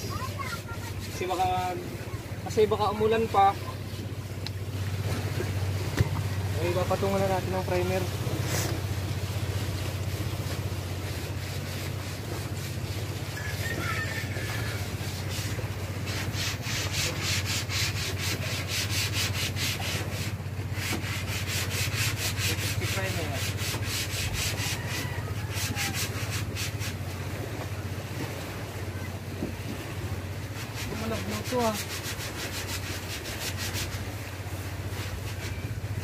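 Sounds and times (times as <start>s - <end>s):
paintbrush scraping inside a can: 6.6s - 8.8s, 30.6s - 34.1s.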